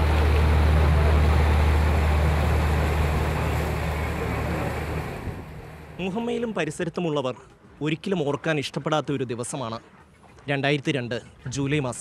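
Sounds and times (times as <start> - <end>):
boat engine running: 0.0 - 6.6.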